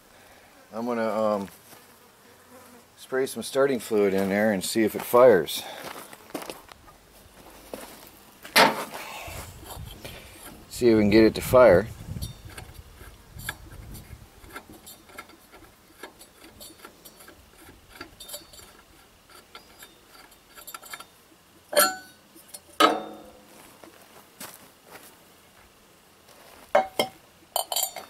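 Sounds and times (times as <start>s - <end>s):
metal clanks: 14.4s - 23.4s, 26.8s - 28.0s.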